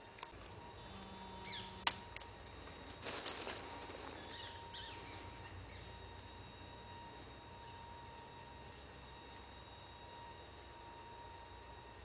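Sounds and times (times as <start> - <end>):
small birds chirping: 1.3 - 1.9, 4.1 - 6.0.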